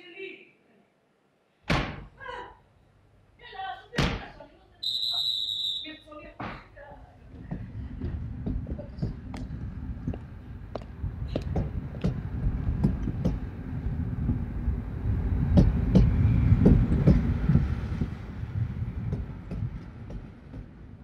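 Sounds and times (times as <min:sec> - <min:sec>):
low rumble: 0:07.1 - 0:21.0
scattered knocks and clicks: 0:12.8 - 0:13.5, 0:15.5 - 0:18.1, 0:19.1 - 0:20.9.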